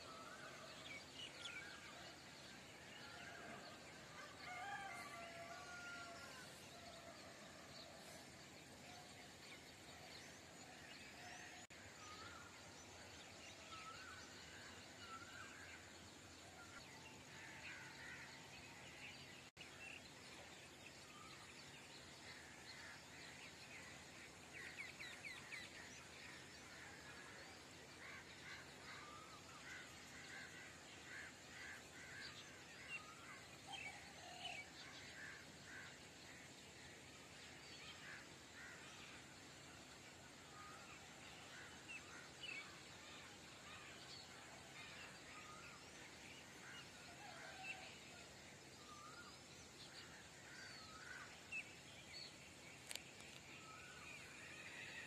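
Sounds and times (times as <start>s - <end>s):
steady background hiss: 0.0s - 55.0s
small birds chirping: 49.6s - 54.8s.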